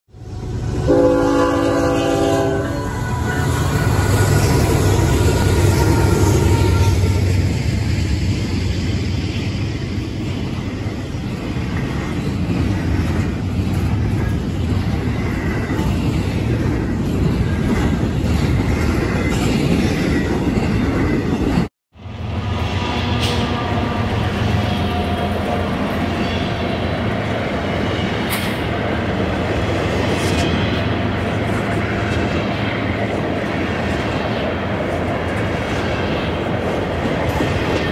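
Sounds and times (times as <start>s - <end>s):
train rolling noise: 0.1s - 37.9s
multi-note train horn: 0.5s - 7.2s, 22.8s - 26.0s.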